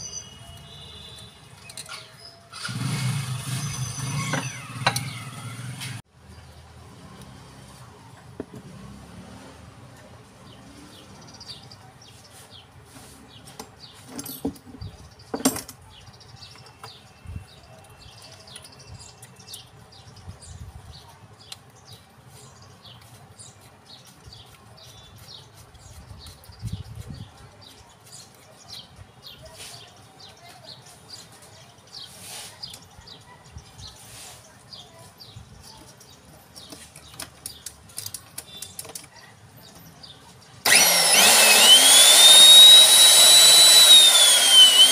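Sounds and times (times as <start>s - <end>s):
power tool starting up: 2.5s - 6.0s, 40.6s - 44.9s.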